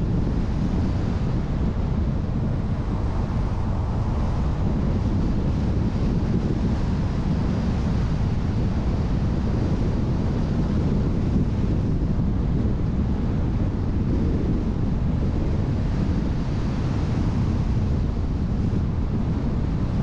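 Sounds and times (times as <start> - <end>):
wind and road noise: 0.0 - 20.0.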